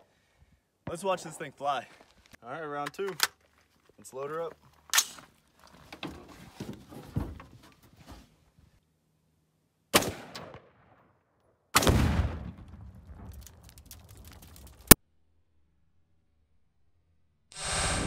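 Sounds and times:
rifle shot: 0:09.9 - 0:11.0, 0:11.8 - 0:12.6
scattered crackles: 0:12.6 - 0:15.0.

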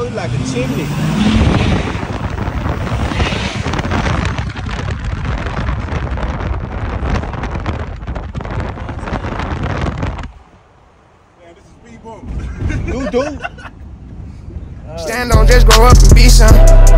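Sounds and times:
car engine: 0:00.0 - 0:11.0
wind buffeting microphone: 0:00.0 - 0:11.0
road noise: 0:00.0 - 0:16.9.

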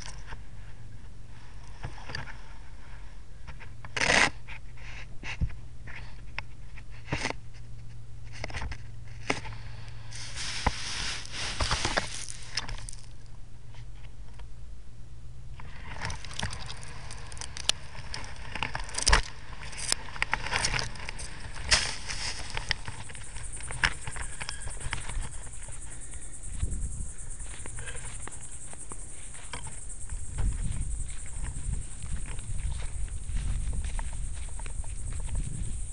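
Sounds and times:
camera rig scraping on sand: 0:10.1 - 0:13.1, 0:15.6 - 0:25.5.

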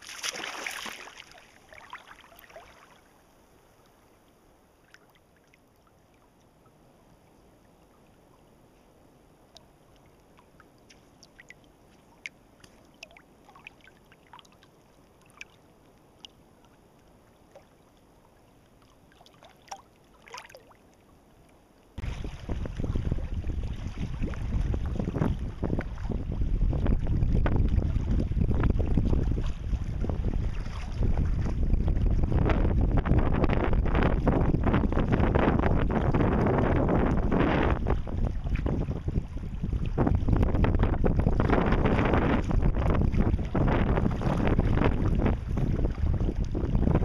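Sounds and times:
small splashes: 0:00.0 - 0:03.1, 0:09.9 - 0:16.8, 0:18.7 - 0:21.0, 0:22.0 - 0:26.3, 0:27.7 - 0:32.0
wind buffeting microphone: 0:22.0 - 0:47.0.

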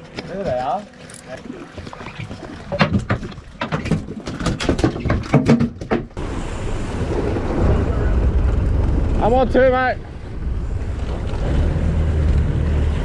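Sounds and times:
wind and water rushing: 0:06.2 - 0:13.0.

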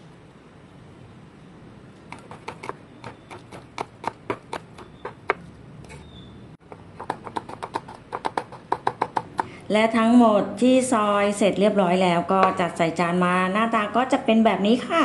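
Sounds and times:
cleaver chopping on wooden board: 0:02.1 - 0:05.4, 0:06.6 - 0:09.6.

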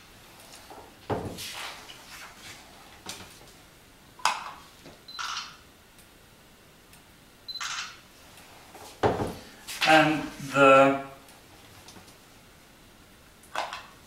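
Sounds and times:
camera beep: 0:05.1 - 0:05.6, 0:07.5 - 0:08.0
camera shutter noise: 0:05.1 - 0:05.6, 0:07.5 - 0:08.0.

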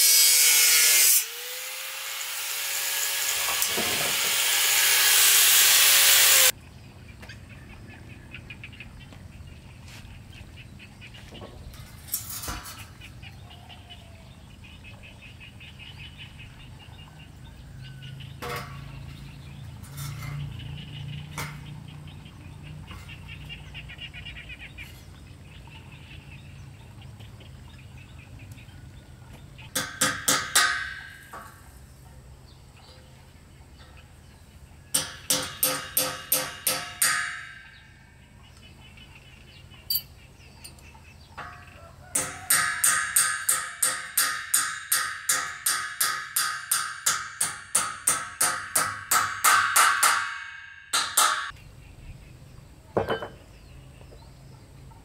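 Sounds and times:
power tool cutting steel: 0:00.0 - 0:06.5.

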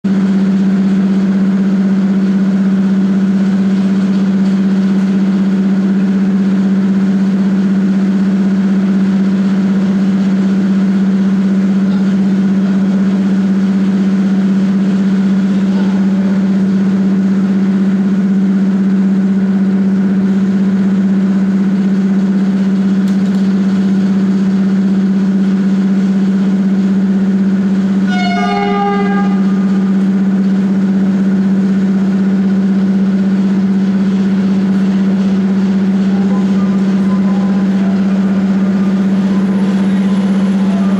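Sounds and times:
air compressor droning: 0:00.0 - 0:40.9
brief ringing tone: 0:28.0 - 0:31.6, 0:35.1 - 0:40.9.

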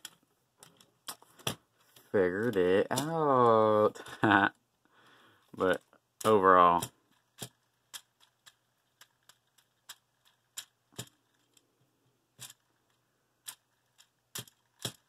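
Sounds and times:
plastic toy parts clicking: 0:00.0 - 0:01.6, 0:02.4 - 0:03.6, 0:05.6 - 0:11.7, 0:12.4 - 0:15.0.

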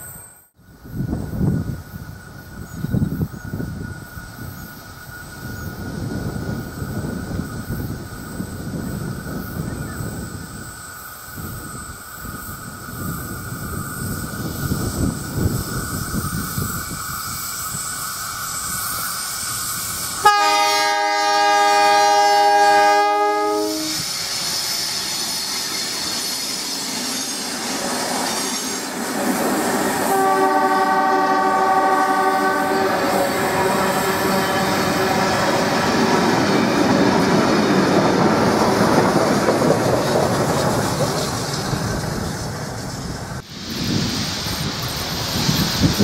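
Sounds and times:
train wheels on rails: 0:00.0 - 0:46.0
long horn-like tone: 0:20.2 - 0:24.1, 0:30.0 - 0:36.2
loud locomotive horn blast: 0:20.2 - 0:24.1, 0:30.0 - 0:36.3
locomotive engine rumble: 0:28.8 - 0:45.8.

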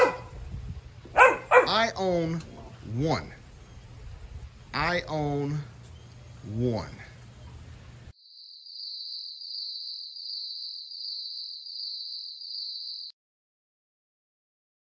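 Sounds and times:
insect trill: 0:08.2 - 0:13.1.

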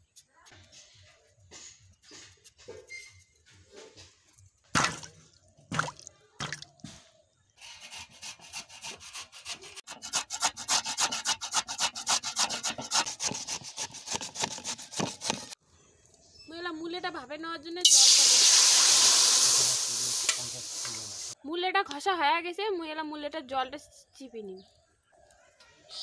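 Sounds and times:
sharp knocks and scrapes: 0:00.5 - 0:05.0, 0:06.4 - 0:15.6
grating on metal grater: 0:07.6 - 0:15.6.

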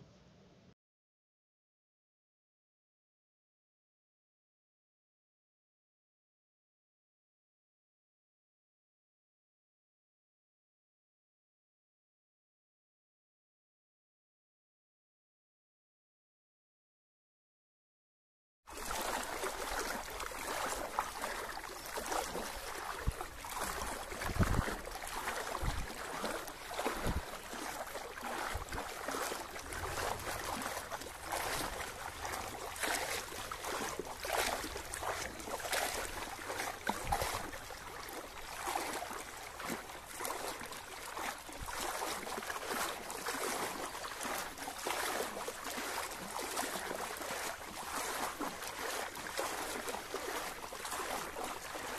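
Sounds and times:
floodwater splashing and sloshing: 0:18.7 - 0:51.9.

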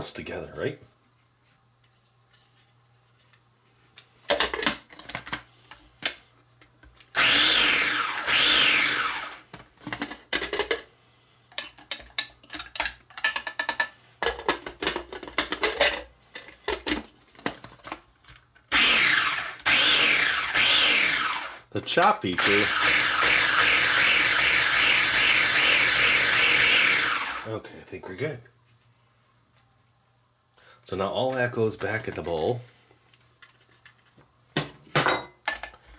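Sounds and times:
food processor pulsing: 0:07.2 - 0:09.4, 0:18.7 - 0:21.6, 0:22.4 - 0:27.5.

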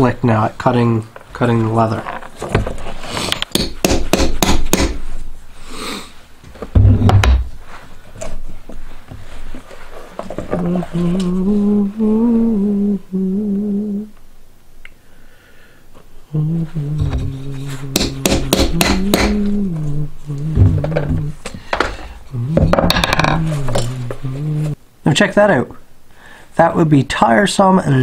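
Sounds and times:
man humming: 0:10.4 - 0:14.2, 0:16.2 - 0:24.8
heavy thump: 0:20.6 - 0:23.4.

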